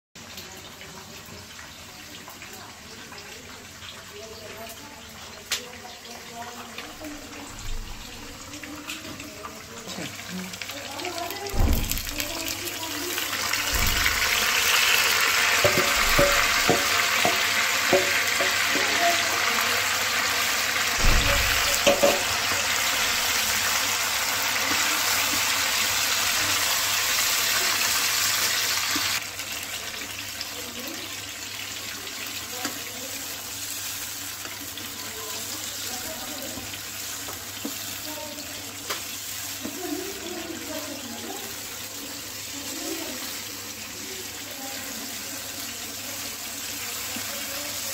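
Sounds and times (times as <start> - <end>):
food sizzling in hot oil: 0.2 - 47.9
sauce bubbling: 10.1 - 30.4
wooden spatula knocking pan: 15.6 - 19.2, 21.0 - 22.5.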